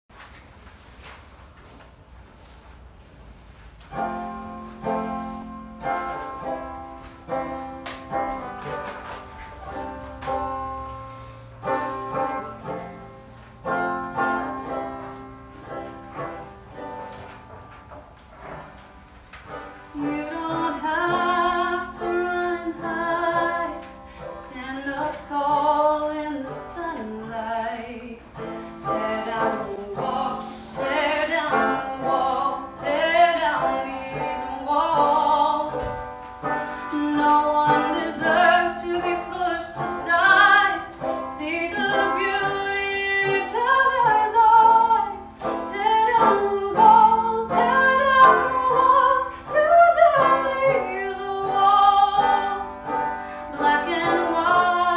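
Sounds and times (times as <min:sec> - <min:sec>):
woman singing: 0:19.9 - 0:36.2, 0:36.8 - 0:54.9
banjo: 0:28.4 - 0:54.9.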